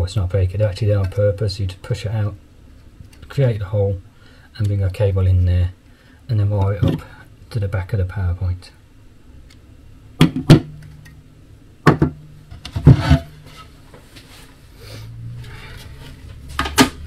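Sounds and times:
faint steady hum: 0:00.0 - 0:17.0
objects knocking on wooden workbench: 0:10.2 - 0:10.7, 0:11.9 - 0:13.6.

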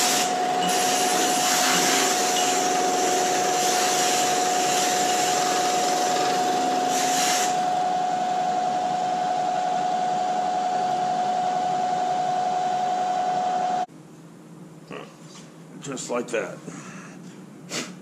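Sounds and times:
constant machine whine: 0:00.0 - 0:13.9
shop machinery hum: 0:00.0 - 0:14.2.

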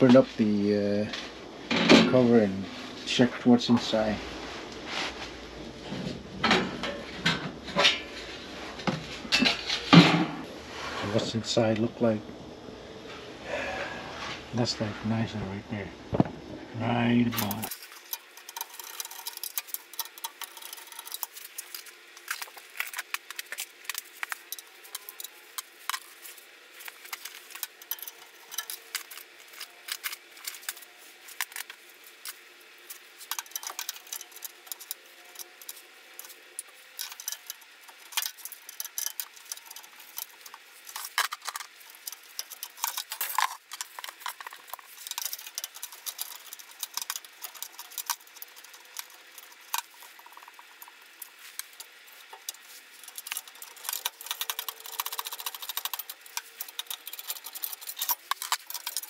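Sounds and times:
tools clicking on sheet metal: 0:33.2 - 0:59.0.

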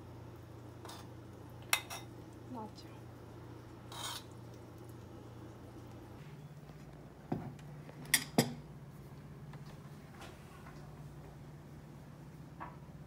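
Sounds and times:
steady low hum: 0:00.0 - 0:13.0
bowls and utensils clinking: 0:08.0 - 0:08.6.

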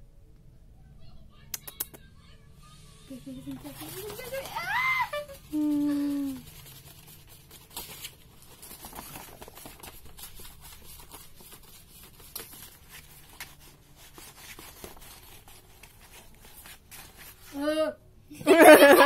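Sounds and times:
cloth and paper rustling: 0:03.4 - 0:17.7.

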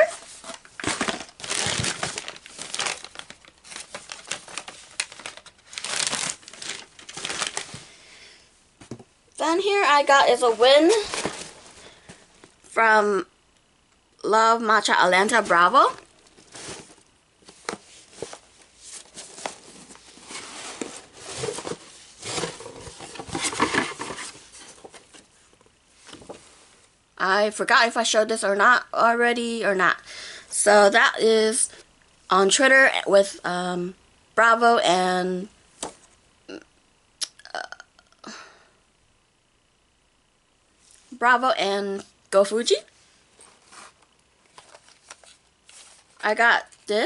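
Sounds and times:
paper and card rustling: 0:00.0 - 0:07.9, 0:09.9 - 0:12.2, 0:15.2 - 0:25.3, 0:43.4 - 0:46.4
plastic bag crinkling: 0:00.3 - 0:07.9.

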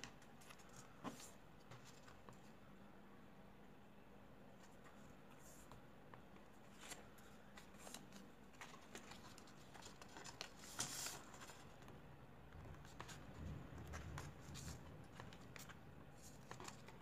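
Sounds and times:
paper rustling and crinkling: 0:06.4 - 0:12.0, 0:12.6 - 0:17.0.

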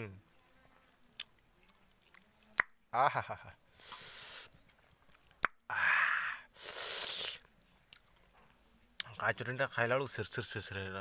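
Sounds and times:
mouth clicks: 0:02.4 - 0:02.8
hissing breaths: 0:03.7 - 0:04.6, 0:05.7 - 0:07.4.

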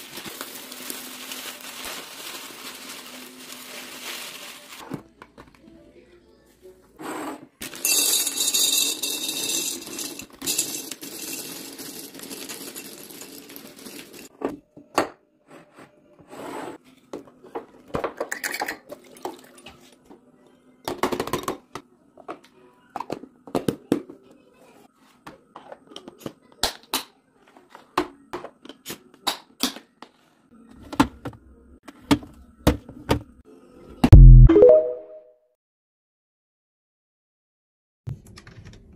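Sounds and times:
dry pasta rattling into glass jar: 0:07.6 - 0:14.3.

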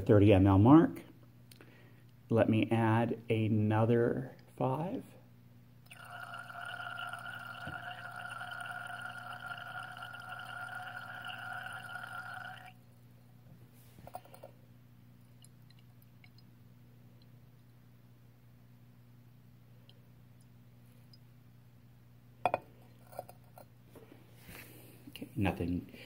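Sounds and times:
liquid running into flask: 0:05.9 - 0:13.2.

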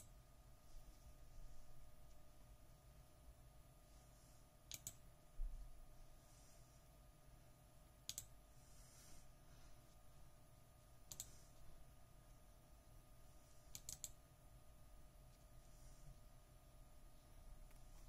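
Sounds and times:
faint steady hum: 0:00.0 - 0:18.0
computer mouse button clicking: 0:04.7 - 0:05.0, 0:08.1 - 0:08.3, 0:11.1 - 0:11.3, 0:13.7 - 0:14.2.

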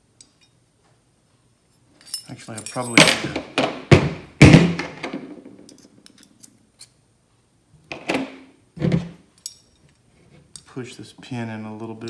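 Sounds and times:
light clicks of metal parts: 0:00.2 - 0:00.6, 0:01.7 - 0:03.1, 0:09.3 - 0:10.8
metal parts clacking on concrete: 0:02.0 - 0:03.4.

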